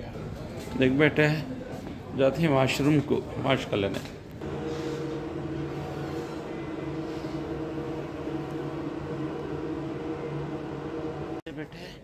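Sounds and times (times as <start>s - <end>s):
electric machine hum: 4.4s - 11.4s.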